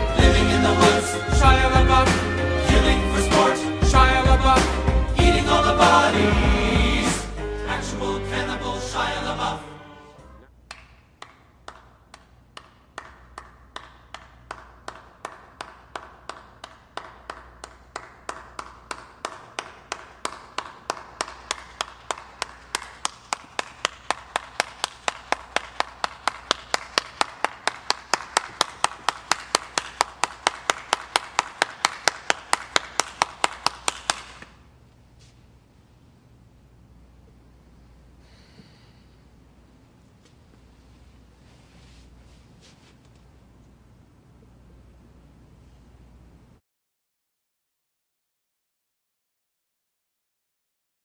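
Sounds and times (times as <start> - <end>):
sharp hand claps: 10.6 - 34.7.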